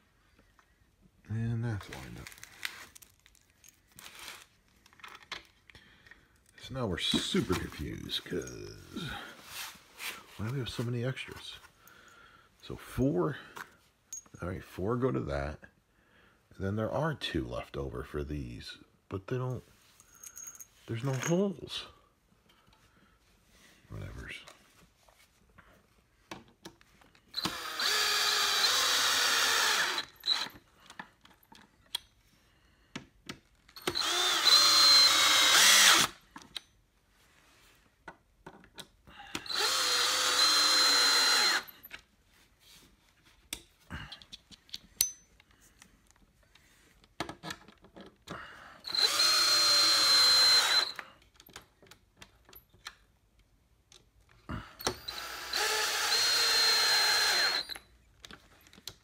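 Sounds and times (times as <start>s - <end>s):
clicks and knocks of handling parts: 4.7s - 7.7s, 30.4s - 32.3s, 36.2s - 36.9s, 38.0s - 39.5s, 43.3s - 48.4s, 50.9s - 55.1s, 57.7s - 59.0s
power drill driving screws: 27.3s - 30.6s, 33.8s - 36.2s, 39.4s - 41.8s, 48.8s - 51.0s, 54.8s - 57.9s.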